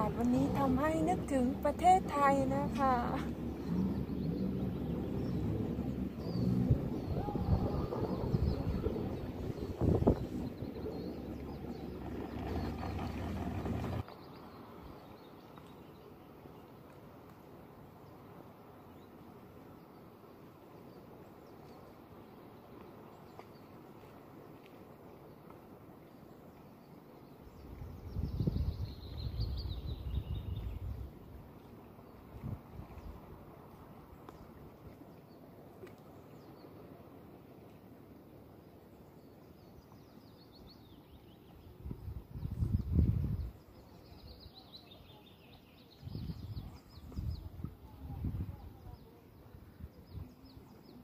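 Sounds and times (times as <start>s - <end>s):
wind gust buffeting microphone: 0.0s - 14.0s, 41.8s - 43.6s
wind on microphone: 0.0s - 14.0s, 27.6s - 31.4s, 32.3s - 33.4s, 41.7s - 43.7s, 45.9s - 50.7s
small birds chirping: 0.0s - 14.5s
low steady water rush: 0.0s - 51.0s.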